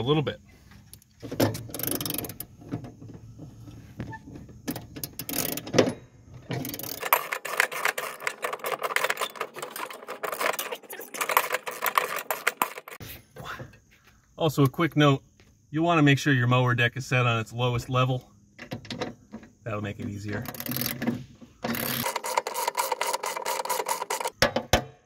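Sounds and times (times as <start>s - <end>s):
ratchet wrench clicking: 1.6s - 2.5s, 5.0s - 5.7s, 6.6s - 9.4s, 20.4s - 21.0s, 21.6s - 24.4s.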